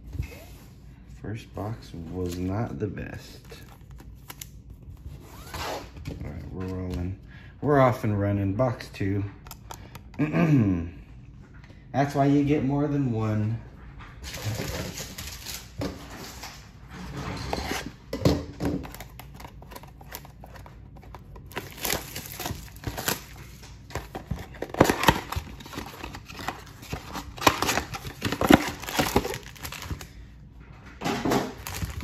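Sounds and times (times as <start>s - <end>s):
crinkling and rustling: 13.8s - 32.0s
cardboard tearing: 18.8s - 30.0s, 31.6s - 32.0s.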